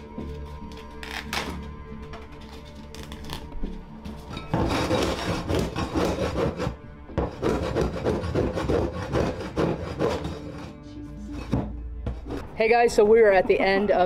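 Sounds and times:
floor scraper rasping on wood: 4.6s - 10.8s.

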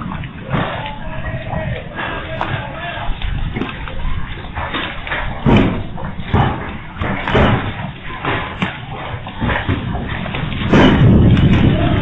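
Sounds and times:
hail and rain clatter: 10.4s - 12.0s.

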